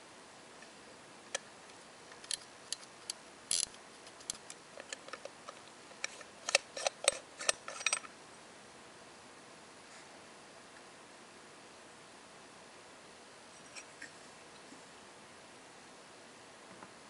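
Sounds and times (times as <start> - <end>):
watch winding ratchet clicking: 2.2 - 4.9.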